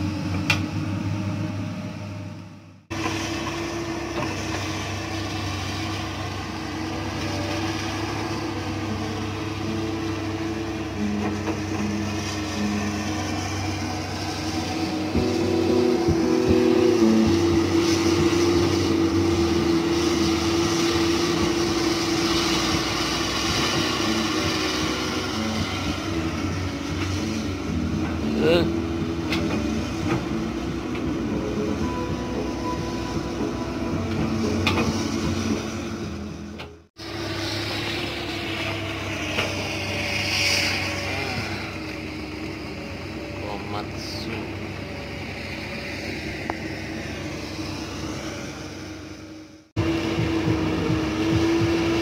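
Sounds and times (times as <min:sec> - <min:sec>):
excavator diesel engines droning: 0:00.0 - 0:52.0
hydraulic hiss: 0:37.0 - 0:43.1.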